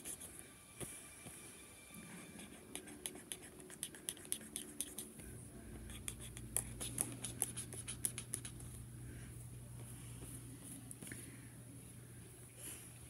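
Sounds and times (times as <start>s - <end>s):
drawing strokes on paper: 0.0s - 0.9s, 2.2s - 5.2s
low steady hum: 0.0s - 13.0s.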